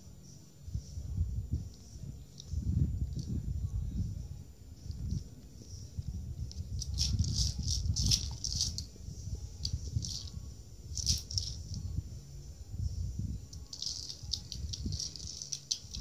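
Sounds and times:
dry cat food rattling in toy: 6.5s - 8.9s, 9.6s - 11.8s, 13.6s - 16.0s.

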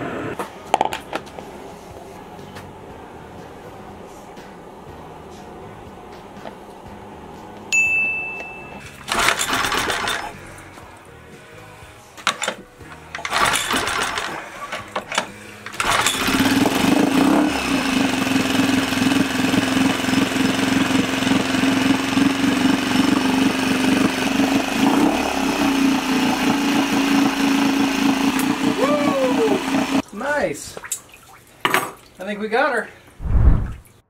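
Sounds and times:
outboard engine starting: 9.0s - 10.5s, 12.3s - 28.8s
engine running steadily: 12.9s - 30.0s.

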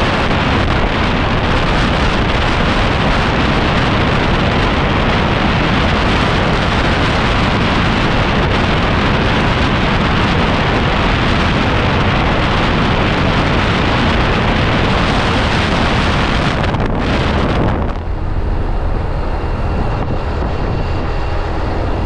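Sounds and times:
road noise: 0.0s - 22.0s
wind rush on microphone: 0.0s - 22.0s
scooter engine: 14.7s - 22.0s.

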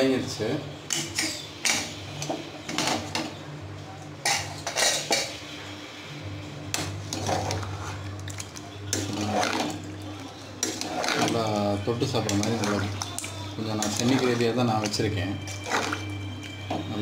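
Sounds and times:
metal ladle scraping a pot: 4.2s - 5.3s, 6.8s - 9.9s, 10.6s - 16.8s.

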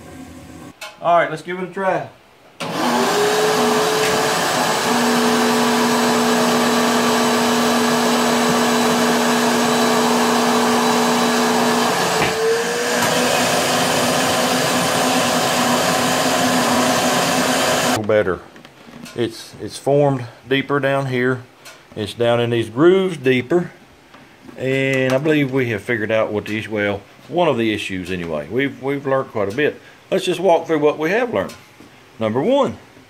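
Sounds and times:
vacuum motor whining: 2.6s - 18.0s.

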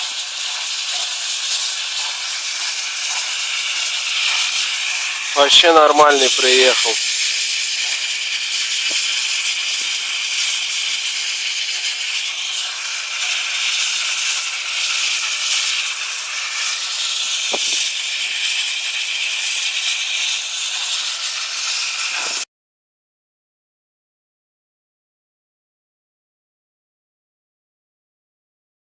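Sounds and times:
steam hissing: 0.0s - 22.5s.

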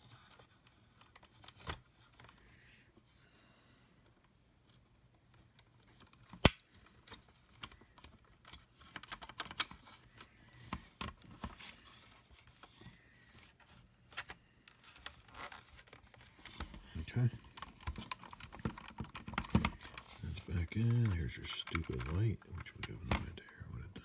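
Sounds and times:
small plastic clicks and scraping: 0.0s - 2.5s, 5.2s - 24.0s
sharp loud plastic click: 6.4s - 6.7s.

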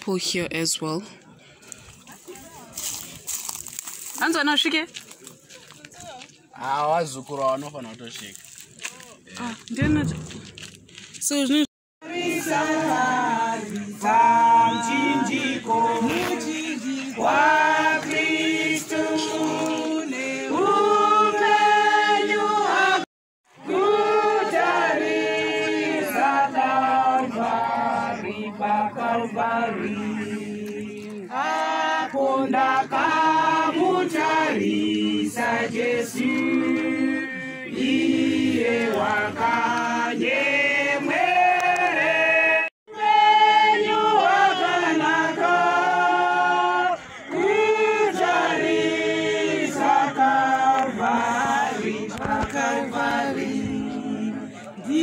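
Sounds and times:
group singing a hymn: 12.0s - 55.0s.

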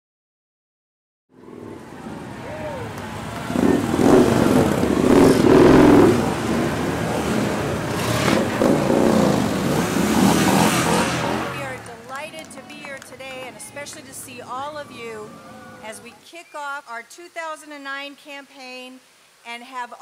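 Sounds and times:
motorcycle engines revving: 1.3s - 16.1s.

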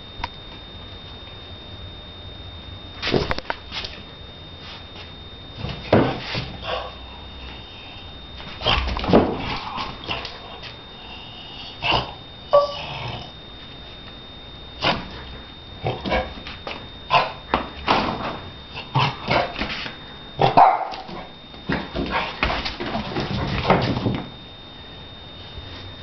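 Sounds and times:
dog barking and yipping: 20.4s - 21.2s.

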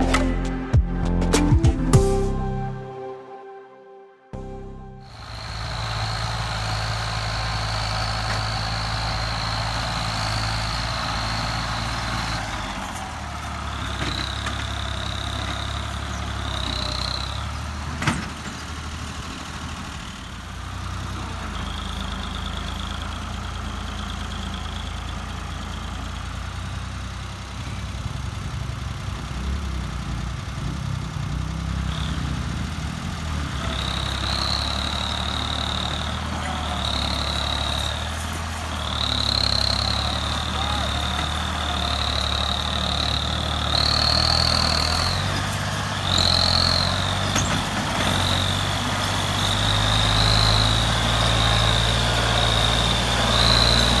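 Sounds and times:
high whine: 1.9s - 12.5s
tractor diesel engine under load: 4.4s - 54.0s.

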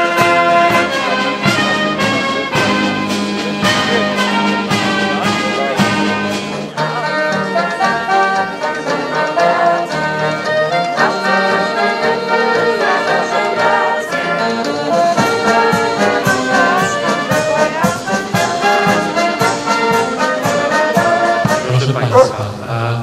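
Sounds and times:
steady drum beat: 0.0s - 6.8s, 15.1s - 22.6s
brass band playing: 0.0s - 22.7s.

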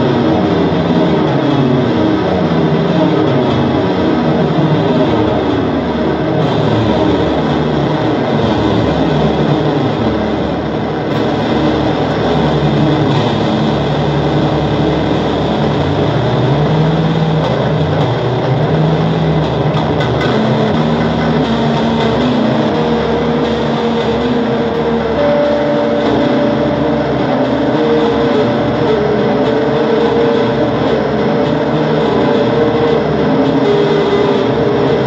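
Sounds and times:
low droning tones: 0.0s - 35.0s.

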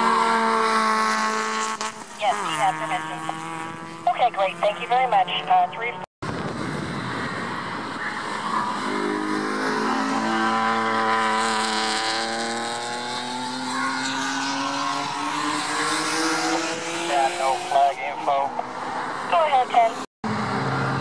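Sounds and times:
race car engine accelerating: 7.6s - 17.8s.

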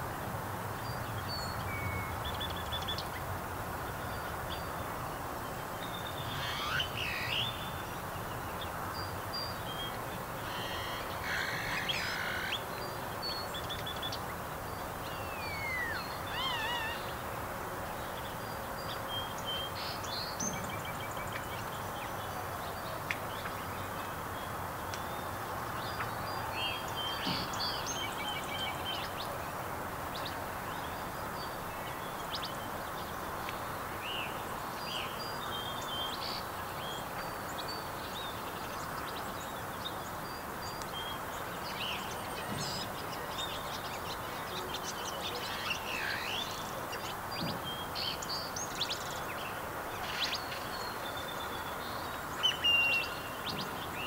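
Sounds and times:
steady background hiss: 0.0s - 54.0s
small birds chirping: 5.8s - 17.2s.

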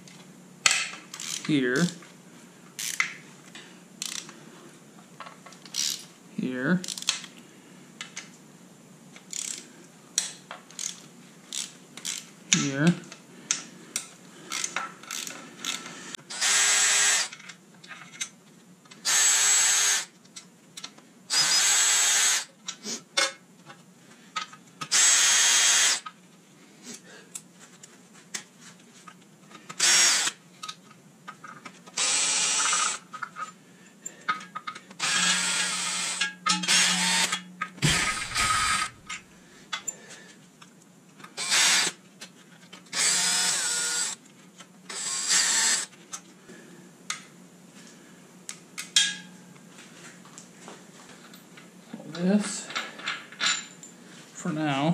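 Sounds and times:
cordless drill spinning: 14.5s - 17.4s, 19.0s - 20.1s, 21.3s - 22.5s, 24.9s - 26.0s, 29.8s - 30.4s, 32.0s - 33.0s, 35.0s - 39.2s, 41.4s - 42.0s, 42.9s - 44.2s, 44.9s - 45.9s.

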